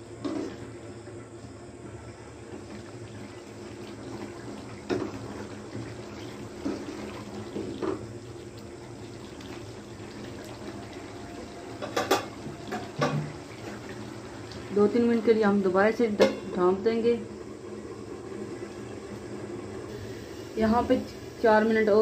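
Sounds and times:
curry simmering and bubbling: 0.1 - 15.4
spoon knocking against pan: 11.8 - 13.3.

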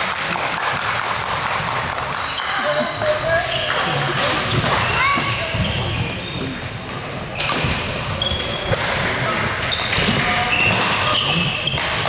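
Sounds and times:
court shoes squeaking: 1.1 - 12.0
rackets hitting shuttlecock: 6.8 - 12.0.

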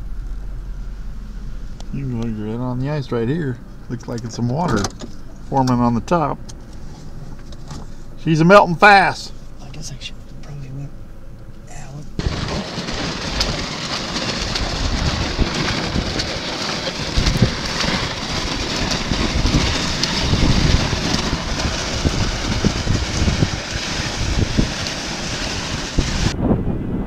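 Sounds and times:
wind buffeting microphone: 12.1 - 27.0
sled runners scraping on ice: 12.2 - 26.4.

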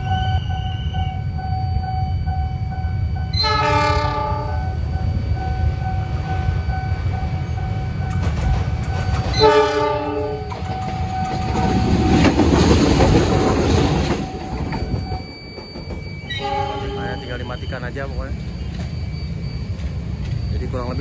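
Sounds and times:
locomotive engine rumble: 0.0 - 21.0
locomotive rushing past: 0.0 - 21.0
train horn chord: 3.3 - 4.6, 9.4 - 10.5, 16.4 - 17.0.

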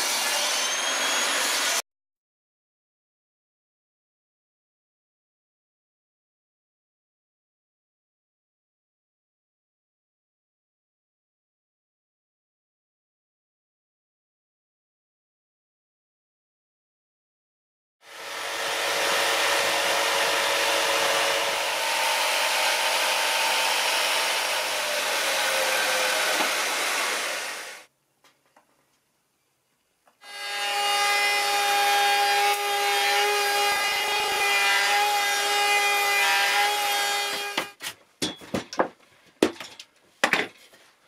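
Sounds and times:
jigsaw sawing wood: 0.0 - 1.8, 18.1 - 27.9, 30.2 - 37.8
trim router whine: 0.0 - 1.8, 18.1 - 27.9, 30.2 - 37.7.

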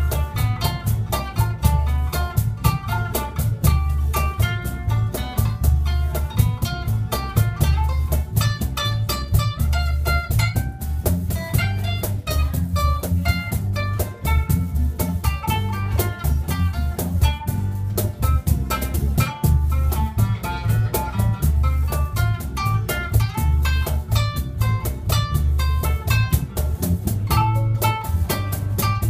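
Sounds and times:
acoustic guitars plucking and strumming: 0.0 - 29.0
cajon beat: 0.0 - 29.0
electric bass line: 0.0 - 29.0.

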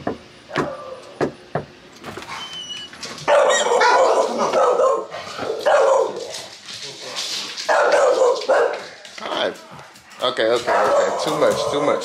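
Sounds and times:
knocking on a door: 0.0 - 1.7
dog barking: 3.2 - 6.4, 7.7 - 8.9, 10.5 - 12.0.

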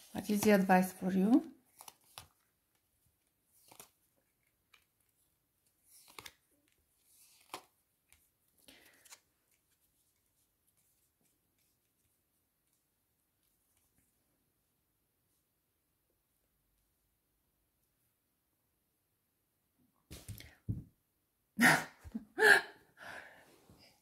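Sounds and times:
cards swishing and slapping: 1.7 - 2.5, 3.2 - 12.1, 20.1 - 20.5.

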